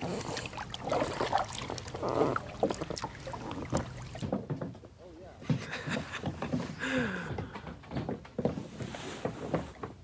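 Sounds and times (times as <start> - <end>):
paddle splashing in water: 0.0 - 4.4.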